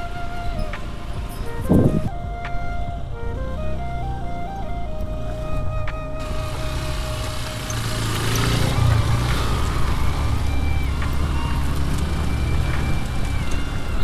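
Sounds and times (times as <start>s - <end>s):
motorcycle engine at low revs: 6.2s - 14.0s.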